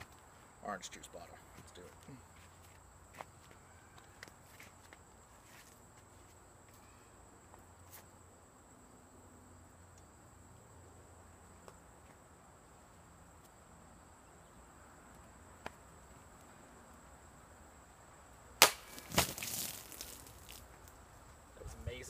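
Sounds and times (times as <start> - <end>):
sharp knock: 18.6 - 19.3
sword slicing plastic bottle: 18.6 - 20.3.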